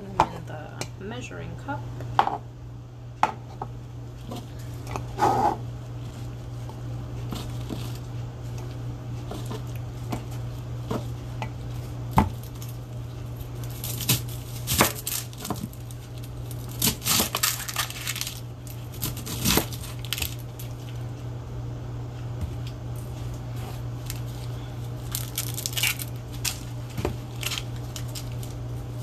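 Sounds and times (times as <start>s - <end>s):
steady low hum: 0.0s - 29.0s
onion skin rustling: 5.9s - 21.2s, 22.5s - 29.0s.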